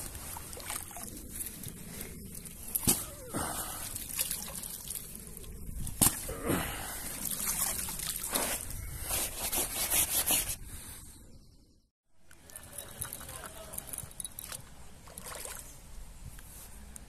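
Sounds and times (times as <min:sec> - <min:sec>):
water dripping and trickling: 0:00.0 - 0:01.8, 0:02.4 - 0:05.9
water sloshing and splashing: 0:00.0 - 0:09.3, 0:12.7 - 0:15.8.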